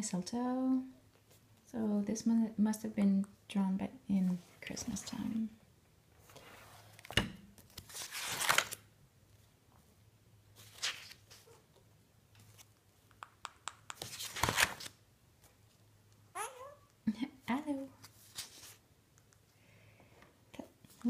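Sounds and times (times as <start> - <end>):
sketchbook pages turning: 6.8 - 8.8, 10.6 - 11.5, 13.9 - 15.0, 18.0 - 18.8.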